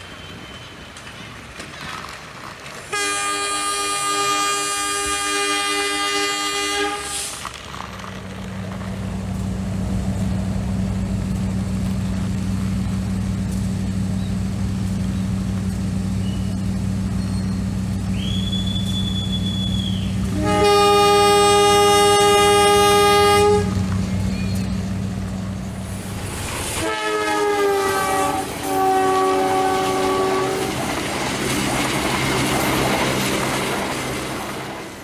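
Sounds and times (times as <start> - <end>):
electronic train horn: 2.9 - 7.4, 18.3 - 24.7, 26.8 - 30.8.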